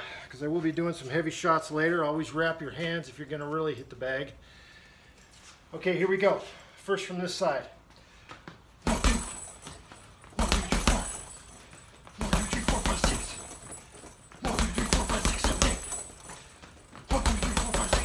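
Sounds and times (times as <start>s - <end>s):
punches smacking heavy bag: 8.8s - 18.0s.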